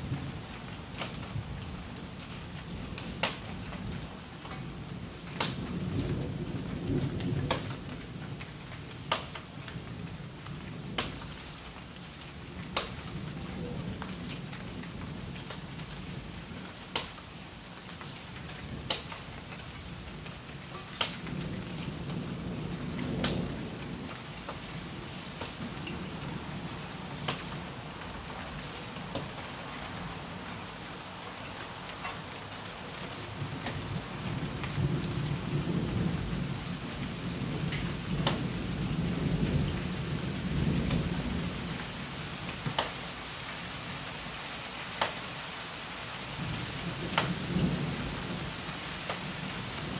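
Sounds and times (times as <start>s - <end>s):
steady rain falling: 0.0s - 49.9s
low rolling thunder: 21.2s - 28.8s, 33.2s - 42.0s, 46.3s - 48.7s.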